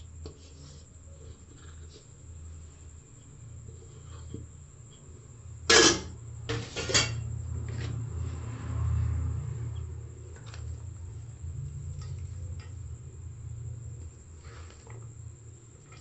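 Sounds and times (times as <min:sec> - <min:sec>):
steady low hum: 0:00.0 - 0:16.0
steel bowls and utensils clinking: 0:05.7 - 0:07.3.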